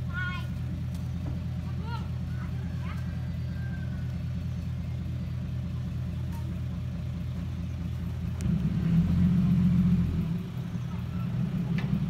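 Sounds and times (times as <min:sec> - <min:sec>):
diesel truck engine rumbling: 0:00.0 - 0:12.0.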